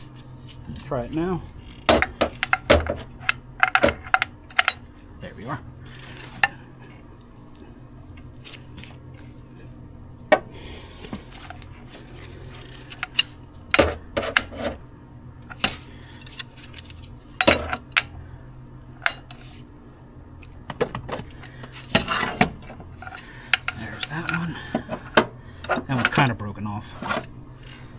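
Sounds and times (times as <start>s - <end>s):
metal tools clinking on engine: 2.0s - 4.9s, 21.4s - 27.2s.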